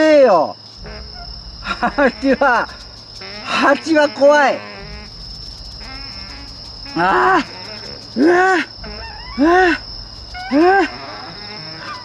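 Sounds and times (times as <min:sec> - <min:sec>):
crickets chirring: 0:00.0 - 0:12.0.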